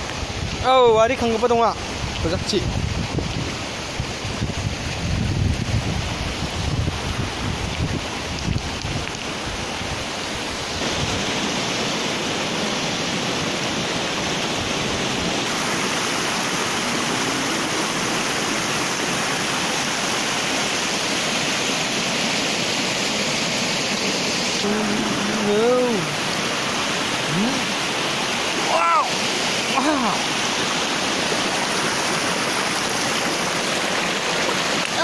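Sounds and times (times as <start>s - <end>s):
river water over rock ledges: 0.0s - 35.0s
wind buffeting microphone: 1.9s - 11.5s.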